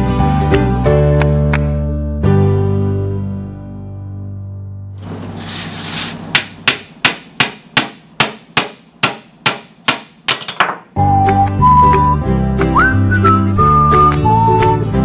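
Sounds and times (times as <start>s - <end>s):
brief scraping rustle: 5.0s - 6.3s
wooden mallet knocking peg: 6.4s - 11.0s.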